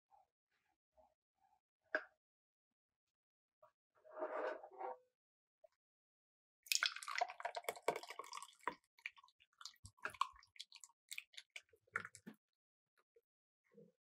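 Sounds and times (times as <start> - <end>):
liquid pouring through a sieve: 6.7 - 12.3
drips and small splashes: 6.7 - 12.4.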